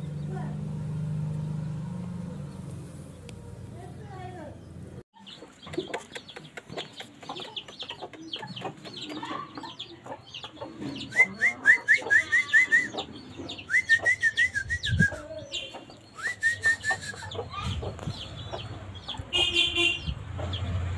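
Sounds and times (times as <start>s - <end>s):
chickens peeping: 5.2s - 20.9s
chickens rapid calls: 5.2s - 20.9s.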